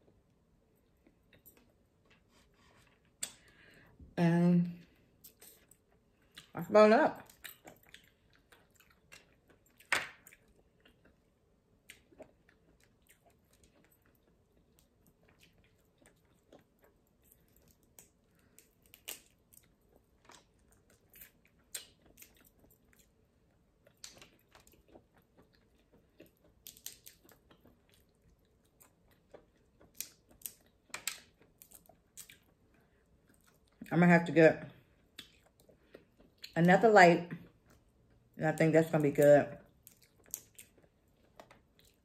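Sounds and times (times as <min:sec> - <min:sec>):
chewing: 0:07.2 - 0:33.9, 0:34.8 - 0:36.6, 0:39.7 - 0:42.0.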